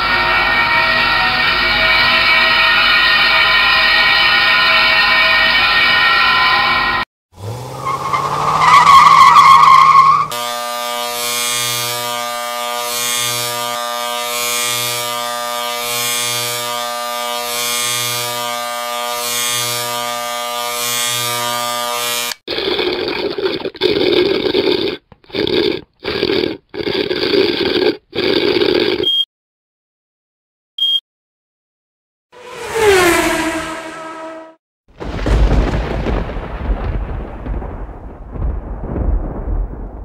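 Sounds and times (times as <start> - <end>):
sawmill saw whining: 0.0 - 22.4
electric shaver buzzing: 10.3 - 22.4
sipping through a straw: 22.5 - 29.2.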